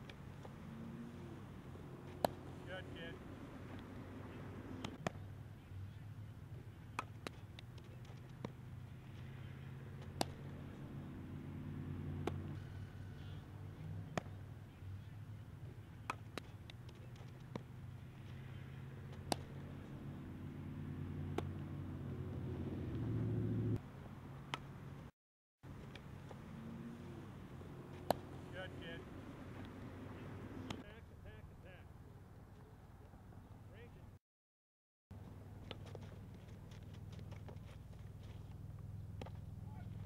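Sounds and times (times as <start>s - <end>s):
low mechanical hum: 0.0s - 25.1s
softball bat cracks: 2.1s - 2.5s, 10.0s - 10.5s, 19.1s - 19.7s, 21.3s - 21.6s, 27.9s - 28.4s.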